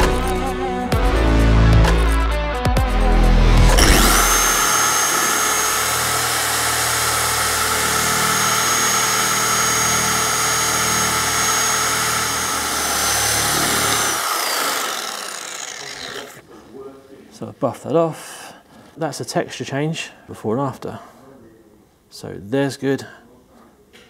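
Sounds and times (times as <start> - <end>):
music: 0.0 - 4.6
polisher high whine: 3.7 - 16.4.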